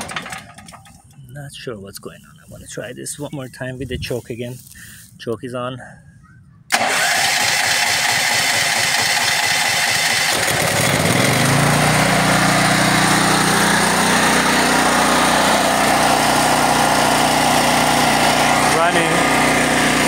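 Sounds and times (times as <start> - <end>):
portable generator engine running: 0.0 - 1.2, 6.7 - 20.0.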